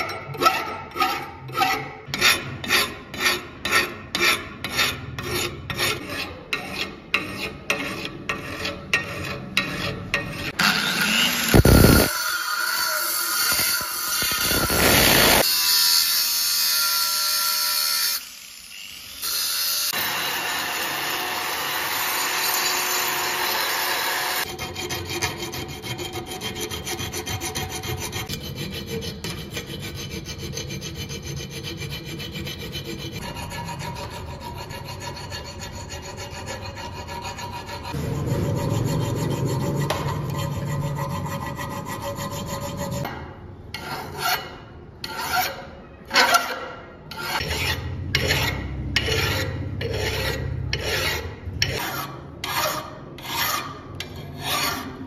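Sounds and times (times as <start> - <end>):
wood being scraped by hand: 24.4 - 43.1.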